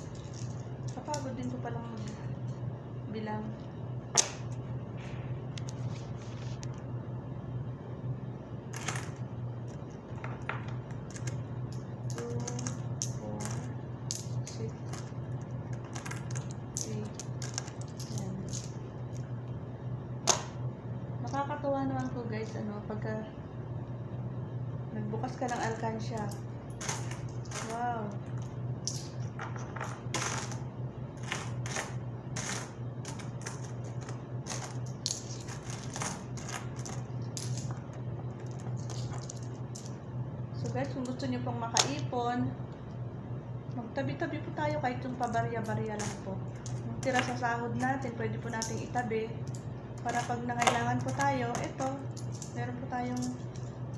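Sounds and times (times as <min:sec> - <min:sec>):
steady low hum: 0:00.0 - 0:53.9
coins clicking together: 0:11.0 - 0:19.2, 0:25.5 - 0:27.9, 0:28.8 - 0:30.6, 0:31.2 - 0:40.0, 0:45.2 - 0:53.8.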